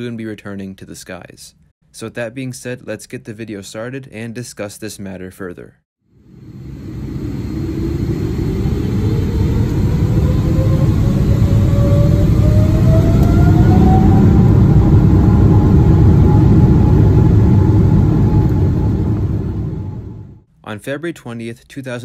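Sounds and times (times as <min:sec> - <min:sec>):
jet engines spooling up: 0:06.2 - 0:20.4.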